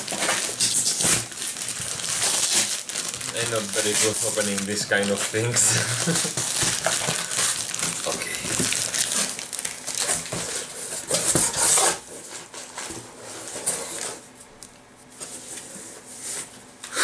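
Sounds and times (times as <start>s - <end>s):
cardboard box rustling and scraping: 10.0s - 14.2s.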